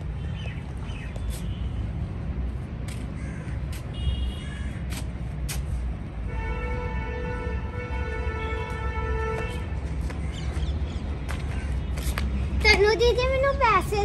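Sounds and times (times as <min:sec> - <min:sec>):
crows cawing: 0:03.2 - 0:04.8, 0:11.4 - 0:11.8.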